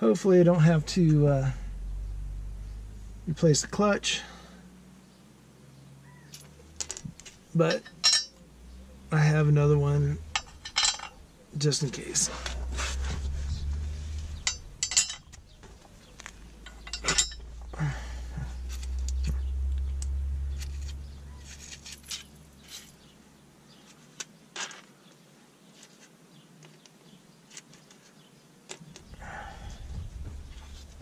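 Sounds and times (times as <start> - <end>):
low rumble: 0.3 - 5.1, 6.4 - 23.2, 29.1 - 31.0
metal hand tools clinking: 6.3 - 8.4, 10.2 - 11.2, 13.4 - 15.4, 16.0 - 17.8, 18.6 - 22.9.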